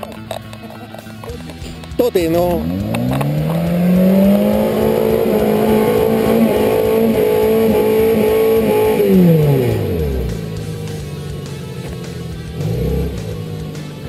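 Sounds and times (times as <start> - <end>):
engine revving under load: 1.8 - 14.0.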